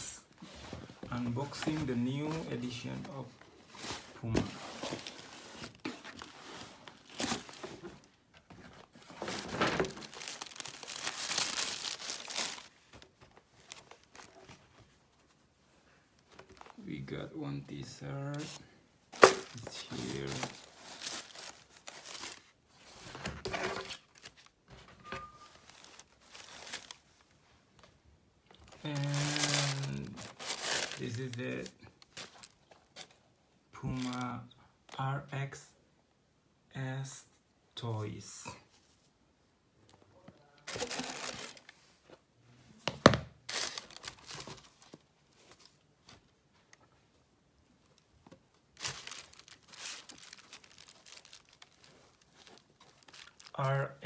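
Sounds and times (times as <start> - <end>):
fabric and paper rustling: 0.4 - 16.8, 19.2 - 27.5, 28.6 - 33.2, 40.6 - 42.2, 43.5 - 46.7, 47.9 - 53.7.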